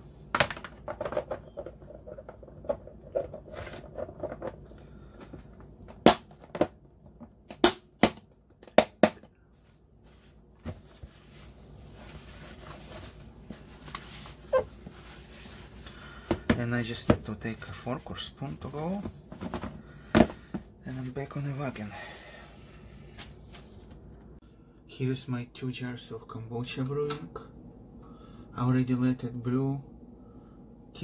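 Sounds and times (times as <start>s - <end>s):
soft handling sounds: 9.4s - 24.4s
paper towel rustling: 9.5s - 15.9s.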